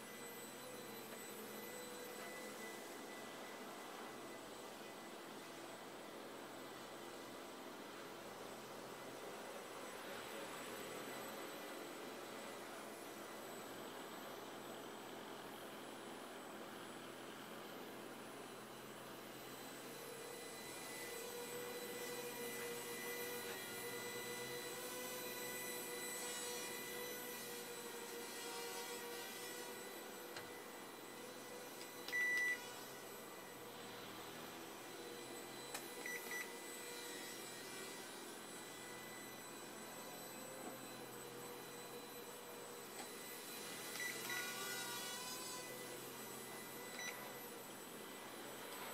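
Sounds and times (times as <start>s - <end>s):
drone motors whining: 0.0s - 4.8s, 19.6s - 34.0s, 34.8s - 48.0s.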